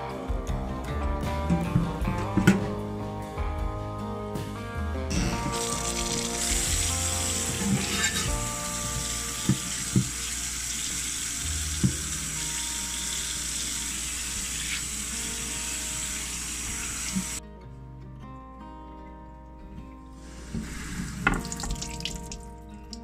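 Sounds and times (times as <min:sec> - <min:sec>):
soft music: 0:00.0 - 0:23.0
tap water running: 0:05.1 - 0:17.4, 0:20.2 - 0:23.0
sponge scrubbing: 0:05.6 - 0:09.1.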